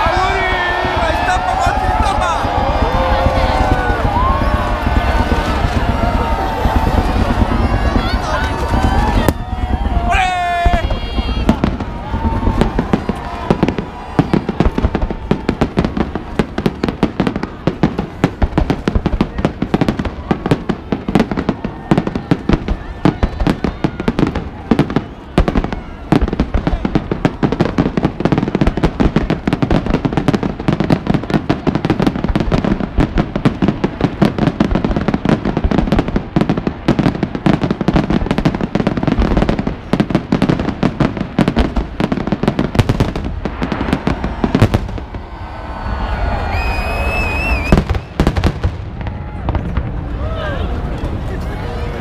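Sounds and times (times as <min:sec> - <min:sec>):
fireworks bangs and pops: 0:00.0 - 0:51.8
high firework whistle: 0:43.8 - 0:49.2.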